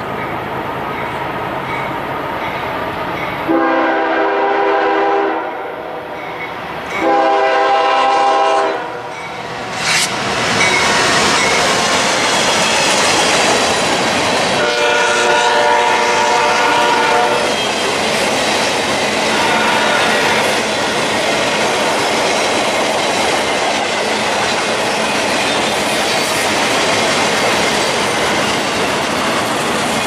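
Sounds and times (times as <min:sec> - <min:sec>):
train wheels rumbling on rail: 0:00.0 - 0:30.0
train air horn blasts: 0:03.5 - 0:06.0, 0:07.0 - 0:09.2, 0:14.6 - 0:17.5, 0:19.3 - 0:20.5.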